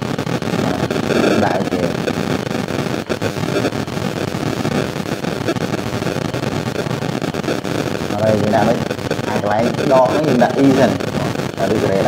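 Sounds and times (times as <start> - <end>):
steady rushing noise: 0.0 - 12.0
speech: 0.6 - 2.0, 8.1 - 12.0.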